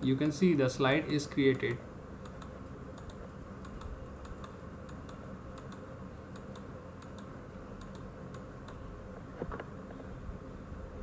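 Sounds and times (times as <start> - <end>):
low background hum: 0.0 - 11.0
computer clicking: 1.0 - 8.8.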